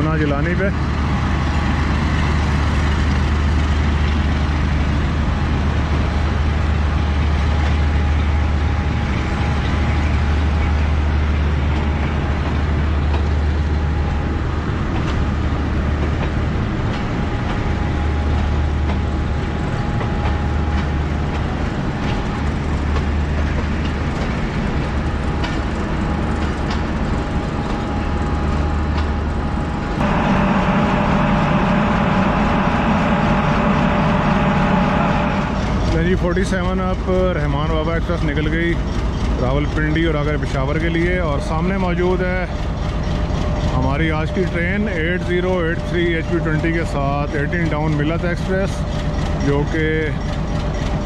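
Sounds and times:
diesel engine throbbing: 0.0s - 51.0s
wheels clicking over rail joints: 18.3s - 29.6s, 36.3s - 51.0s.

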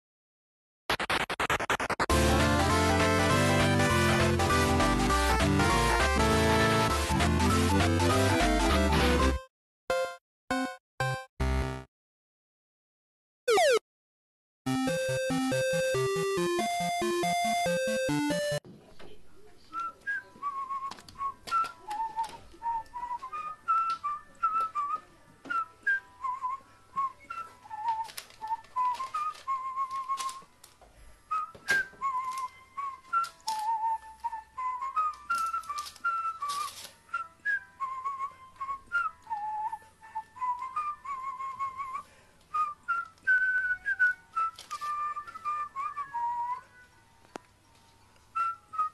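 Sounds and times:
whistled tune: 14.9s - 18.6s, 19.7s - 30.5s, 31.3s - 46.9s, 48.3s - 48.9s
crow pecking paper: 27.7s - 30.8s, 35.3s - 37.0s.

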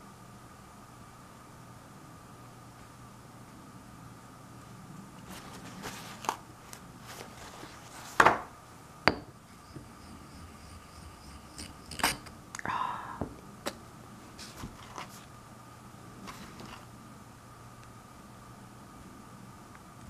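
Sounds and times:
ink stick scratchy scrape: 10.1s - 12.3s.

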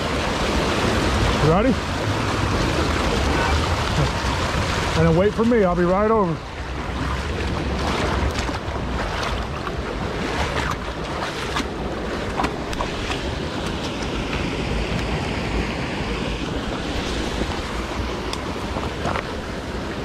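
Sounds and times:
river water rushing: 0.0s - 20.0s
wind buffeting microphone: 0.0s - 20.0s
footsteps and gear on rock: 16.8s - 19.4s.

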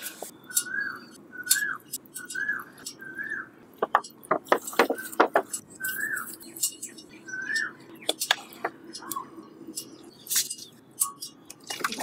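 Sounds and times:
bird whistled call: 0.3s - 3.5s, 5.8s - 6.5s, 7.2s - 7.9s.

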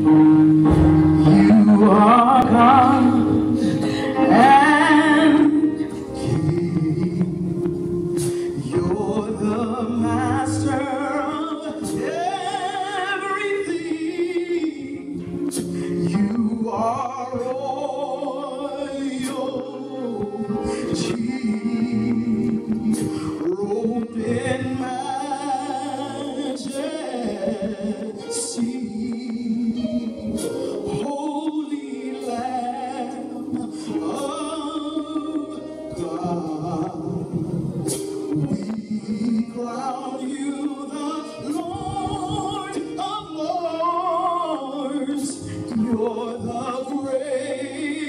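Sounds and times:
gospel singer: 0.0s - 48.0s
musical accompaniment: 0.0s - 48.0s.

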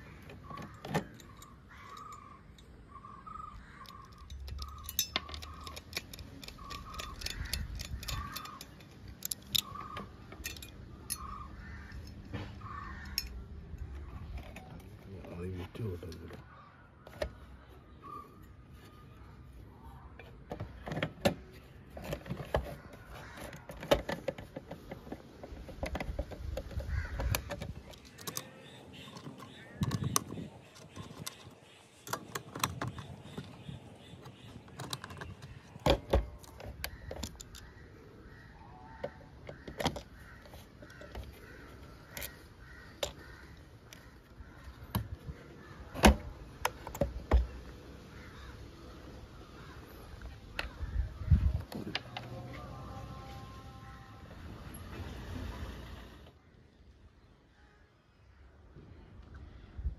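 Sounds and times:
small metal parts clicking: 0.3s - 2.8s, 3.6s - 12.2s, 25.8s - 33.6s, 34.4s - 37.8s.

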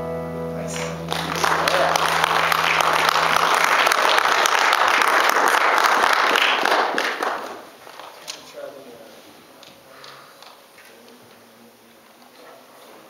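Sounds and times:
low bass note ringing: 0.0s - 3.8s
audience applauding: 0.7s - 8.3s.

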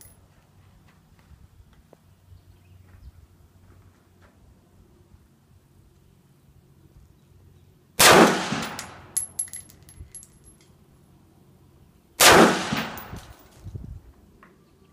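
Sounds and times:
rifle shots: 8.0s - 9.1s, 12.2s - 13.4s
light metallic clinks: 8.6s - 10.8s.

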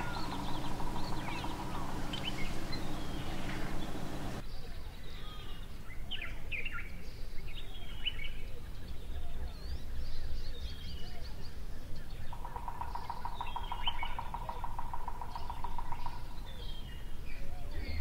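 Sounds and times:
birds chirping: 0.0s - 4.4s, 12.0s - 18.0s
low outdoor rumble: 0.0s - 4.4s.

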